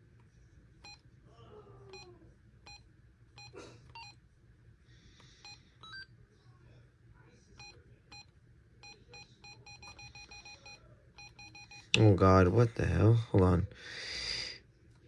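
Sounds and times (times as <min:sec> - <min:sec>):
faint electronic key beeps: 0:07.6 - 0:11.9.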